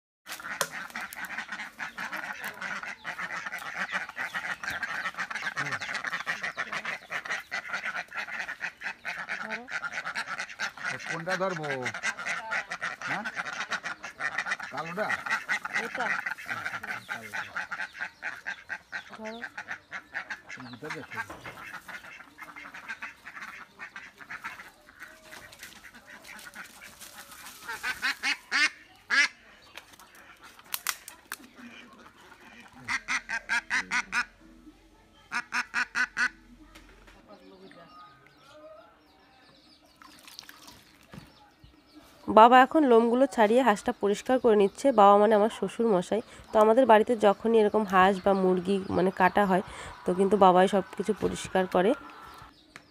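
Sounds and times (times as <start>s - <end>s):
duck alarm quacks: 0.3s - 25.0s, 31.7s - 34.4s, 35.3s - 36.4s
ducks quacking: 0.3s - 38.5s, 39.8s - 52.5s.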